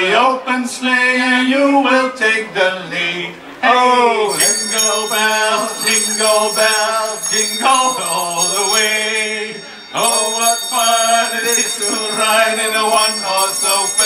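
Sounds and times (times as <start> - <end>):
men singing into microphones: 0.0 - 14.0
bell-like ringing tones: 4.3 - 14.0.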